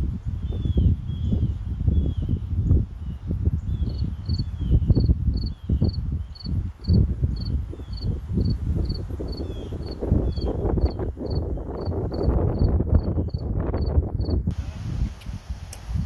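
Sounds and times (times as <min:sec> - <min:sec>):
cricket chirping: 0:03.0 - 0:14.4.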